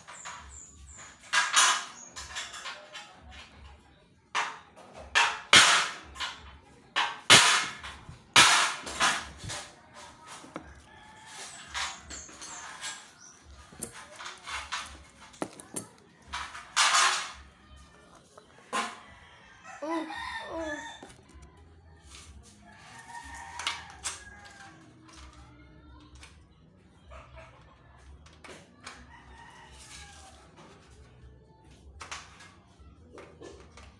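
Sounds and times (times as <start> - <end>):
scraping on aluminium: 6.9 - 19.6.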